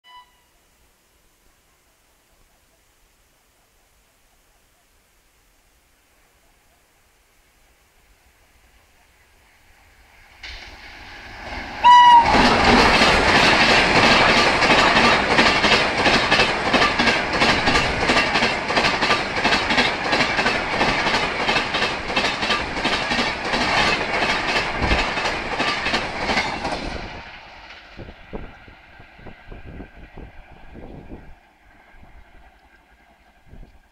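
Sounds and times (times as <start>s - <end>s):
train wheels rushing on rail: 9.4s - 33.9s
locomotive horn blast: 11.8s - 12.6s
wheels clattering over rail joints: 12.1s - 28.1s.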